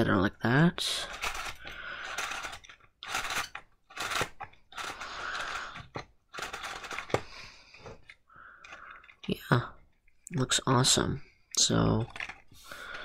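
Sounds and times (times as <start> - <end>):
cardstock rustling and clicking: 1.1 - 10.0.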